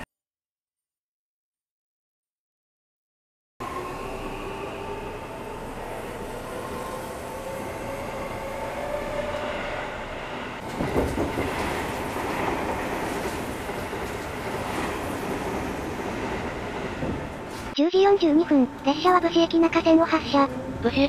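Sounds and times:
train wheels clacking over rail joints: 0:10.6 - 0:14.3.

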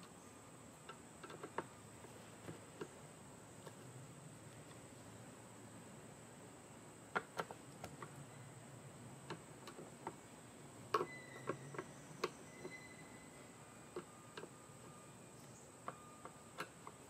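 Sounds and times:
faint short squeak: 0:11.0 - 0:13.6.

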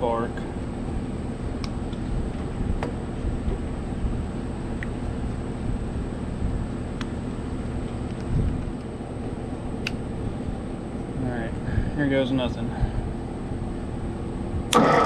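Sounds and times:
low background rumble: 0:00.0 - 0:14.8.

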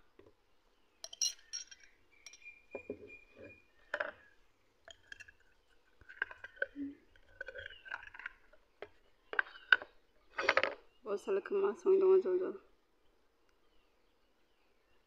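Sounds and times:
metal spoon clinking on glass jar: 0:01.0 - 0:02.5.

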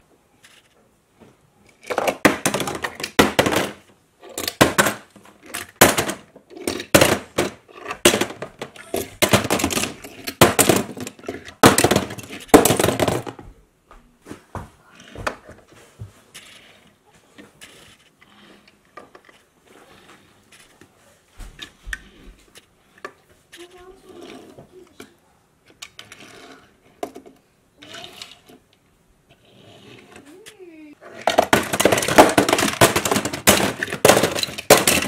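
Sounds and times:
toy cars clattering into plastic bin: 0:01.7 - 0:13.4, 0:30.4 - 0:35.0.

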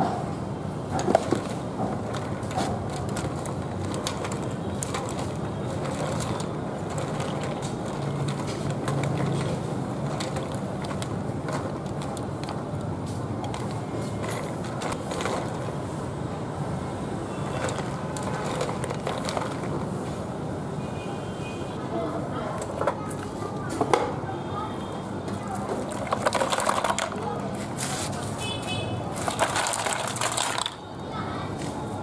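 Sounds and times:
pot boiling and bubbling: 0:01.0 - 0:15.7, 0:25.4 - 0:27.4.

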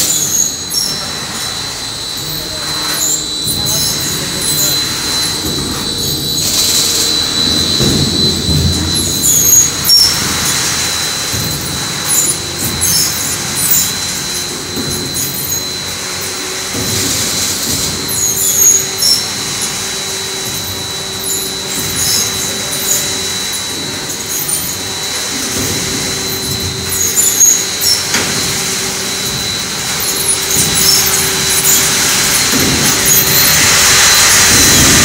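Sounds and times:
high squeaks: 0:00.0 - 0:35.0
machine high whine: 0:00.0 - 0:35.0.

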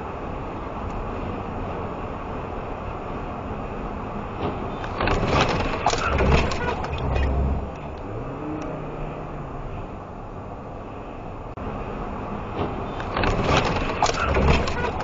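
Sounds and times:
truck cab road and engine noise: 0:00.0 - 0:15.0
rattling clicks: 0:04.4 - 0:08.7, 0:12.5 - 0:15.0.

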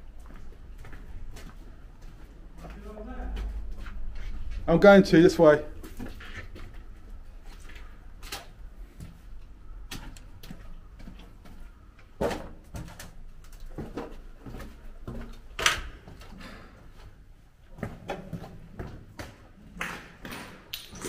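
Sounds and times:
footsteps crunching on littered floor: 0:00.1 - 0:16.4.

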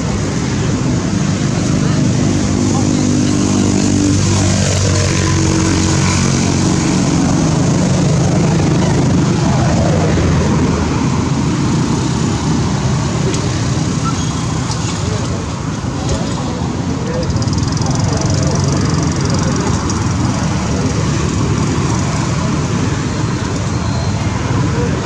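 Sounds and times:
motor engine running: 0:14.6 - 0:25.0.

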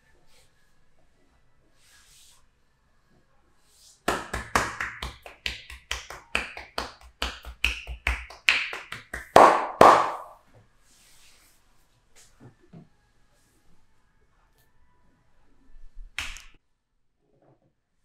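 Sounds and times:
hands slapping a back: 0:04.1 - 0:10.4, 0:16.2 - 0:16.6.

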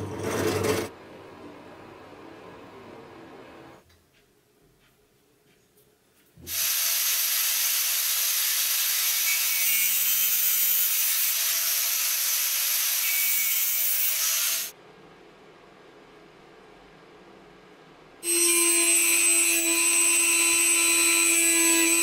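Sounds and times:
faint background noise: 0:00.9 - 0:06.5
grinder disc cutting metal: 0:06.5 - 0:14.7, 0:18.2 - 0:22.0.

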